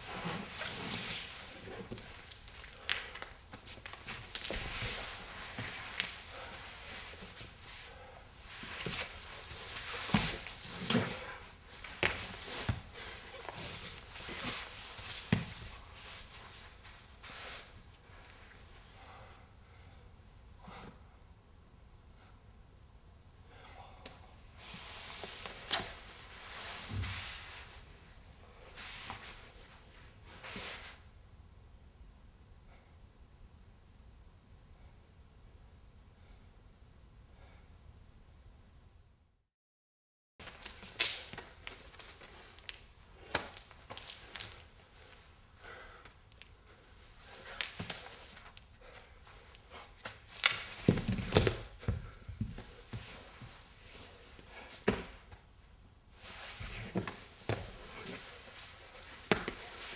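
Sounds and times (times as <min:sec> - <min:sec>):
body sliding over floor: 0:00.0 - 0:19.1, 0:24.6 - 0:31.0, 0:43.2 - 0:55.5, 0:56.1 - 0:59.9
shoes scuffing on hard floor: 0:50.0 - 0:53.5, 0:56.4 - 0:59.9.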